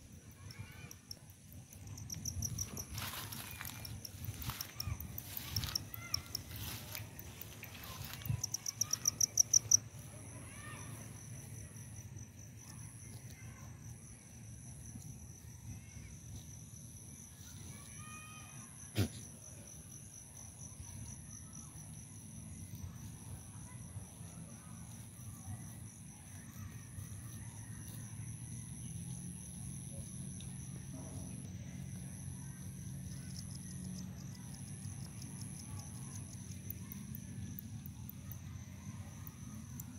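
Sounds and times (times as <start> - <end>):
pulsing insect call: 0.0 - 10.1
insects trilling: 0.0 - 39.9.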